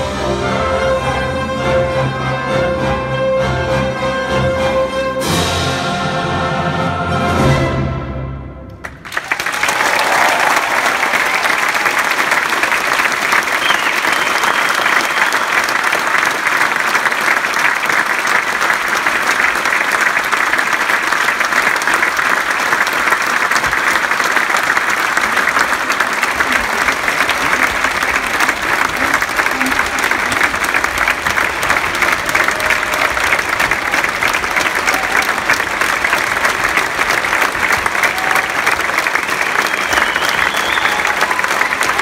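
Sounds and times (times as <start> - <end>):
audience applauding: 8.8 - 42.0.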